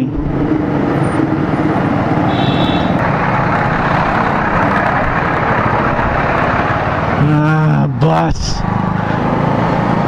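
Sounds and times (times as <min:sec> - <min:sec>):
surrounding traffic: 0:00.0 - 0:10.0
wind and road noise: 0:00.0 - 0:10.0
high-pitched squeal: 0:02.3 - 0:03.0.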